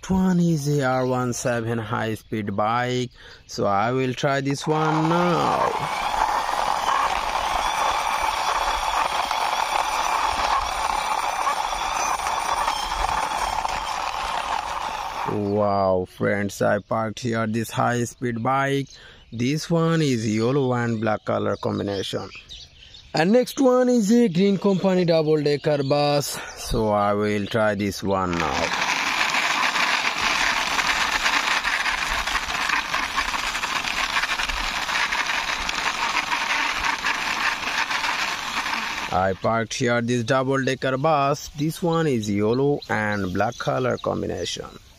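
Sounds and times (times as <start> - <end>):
plastic wheels rolling on concrete: 4.6 - 15.6, 26.3 - 40.8.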